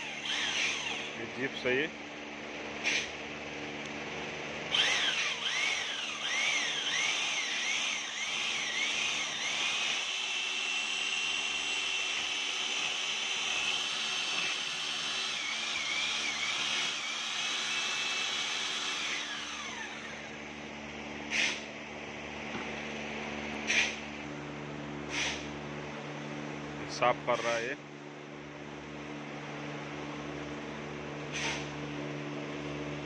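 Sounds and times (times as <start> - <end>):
electric paddle mixer whirring: 0.0 - 1.3, 2.0 - 21.4.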